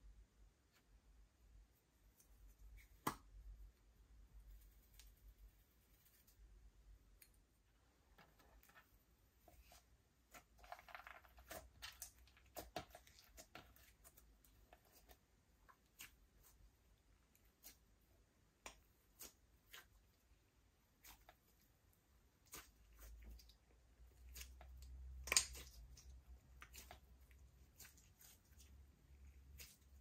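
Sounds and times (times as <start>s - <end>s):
slime clicking and popping: 25.1s - 26.9s.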